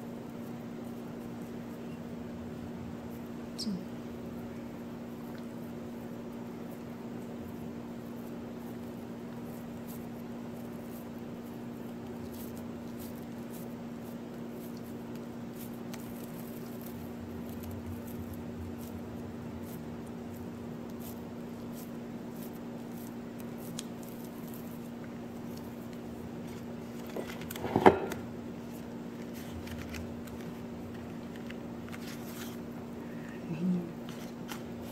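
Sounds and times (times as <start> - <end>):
hands squishing dough: 4.2 - 27.6.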